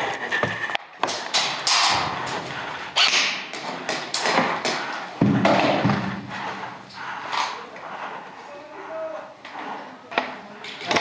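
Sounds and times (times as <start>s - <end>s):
sharp knocks and thuds: 3.5s - 6.3s.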